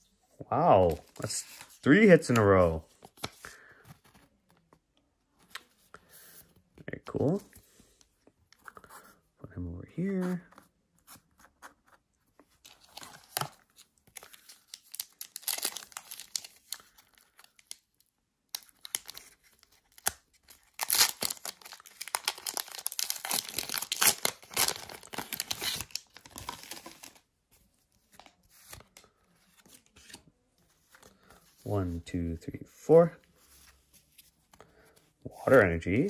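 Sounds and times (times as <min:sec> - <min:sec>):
foil wrapper crinkling and tearing: 0:14.2 - 0:17.8, 0:18.6 - 0:27.2.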